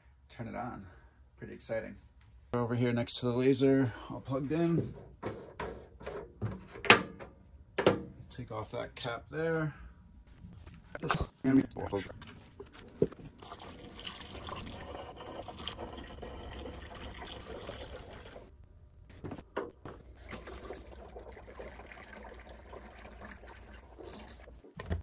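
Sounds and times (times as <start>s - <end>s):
water trickling from a jug: 13.2s - 18.5s, 20.1s - 24.5s.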